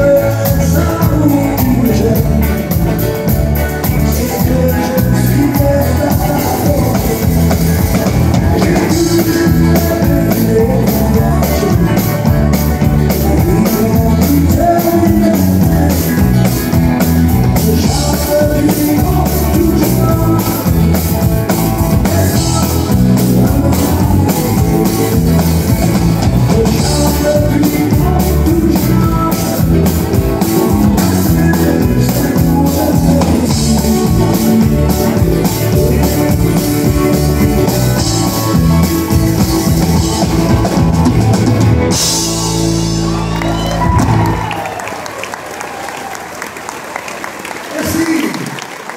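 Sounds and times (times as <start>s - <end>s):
man singing: 0.0s - 44.4s
drums: 0.0s - 46.8s.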